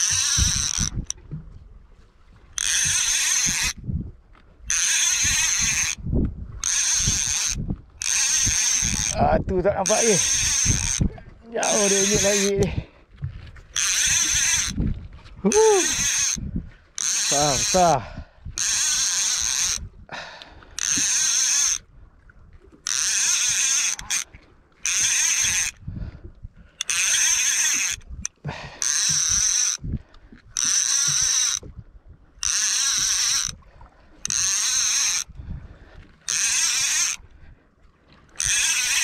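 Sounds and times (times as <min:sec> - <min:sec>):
fishing reel cranking: 0:00.0 - 0:01.2, 0:02.6 - 0:03.8, 0:04.7 - 0:06.0, 0:06.6 - 0:12.8, 0:13.7 - 0:14.8, 0:15.4 - 0:16.4, 0:17.0 - 0:18.0, 0:18.6 - 0:19.9, 0:20.8 - 0:21.9, 0:22.8 - 0:25.9, 0:26.7 - 0:29.8, 0:30.5 - 0:31.7, 0:32.4 - 0:33.6, 0:34.2 - 0:35.4, 0:36.2 - 0:37.3, 0:38.3 - 0:39.0.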